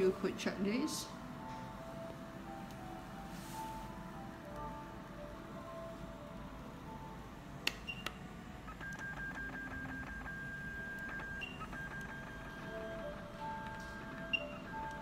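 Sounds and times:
machine beeping: 7.7 - 15.0.

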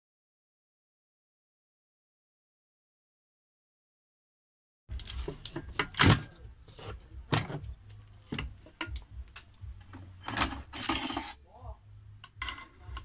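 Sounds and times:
low steady hum: 4.9 - 13.0
jigsaw parts knocking and clinking: 10.2 - 11.4.

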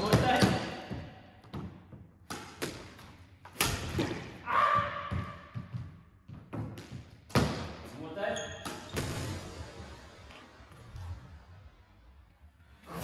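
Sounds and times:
shoe squeak on floor: 8.3 - 9.0.

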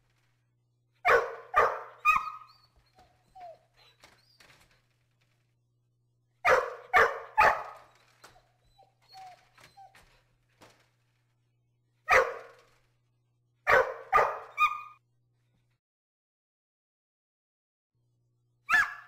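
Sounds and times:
dog barking: 1.0 - 2.6, 6.4 - 7.9, 12.1 - 12.6, 13.7 - 15.0, 18.7 - 19.0
dog whimpering: 2.0 - 4.5, 7.5 - 10.2.

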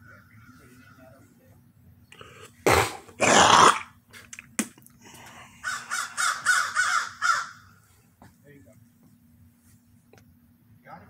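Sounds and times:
crows cawing: 0.0 - 1.2, 5.6 - 7.8.

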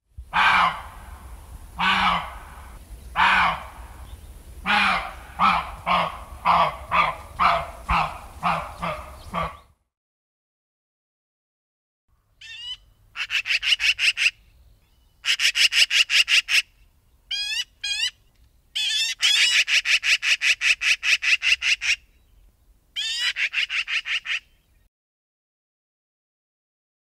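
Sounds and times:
magpie single calls: 0.3 - 0.9, 1.8 - 3.8, 4.6 - 9.7, 12.4 - 14.4, 15.2 - 22.1, 23.0 - 24.6.

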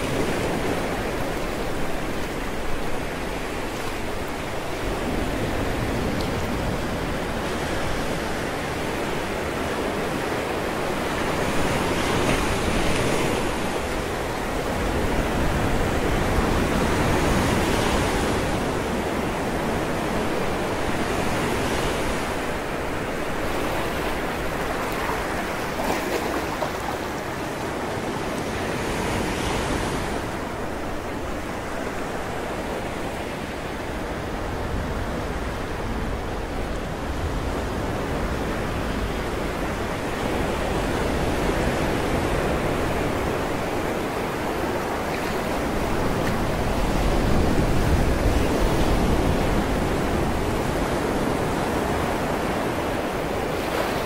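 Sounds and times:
waves breaking on rocky shore: 0.0 - 36.2.

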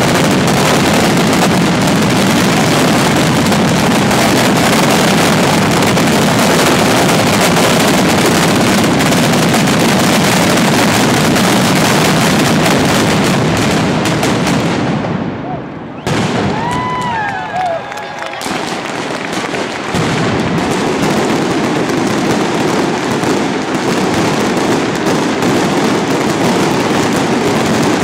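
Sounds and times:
firecrackers exploding: 0.0 - 28.0.

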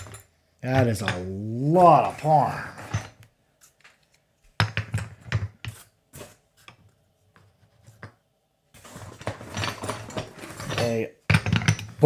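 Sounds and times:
rubbing and rustling: 5.5 - 11.0
wooden blocks clacking together: 9.3 - 12.0.

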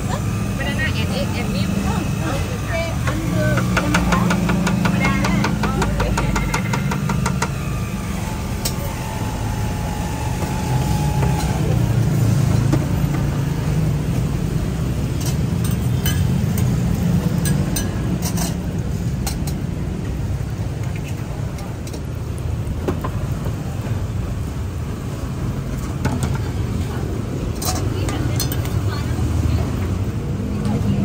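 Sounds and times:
motorbike engines in traffic: 0.0 - 31.0
metal utensils clicking: 27.6 - 28.8.

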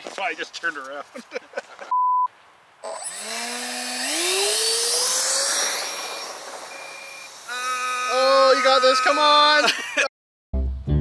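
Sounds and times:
electric motor whining: 2.8 - 9.6.

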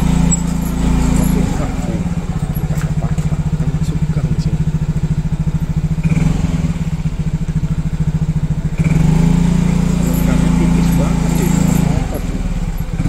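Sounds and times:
small motorcycle engine running: 0.0 - 13.0.

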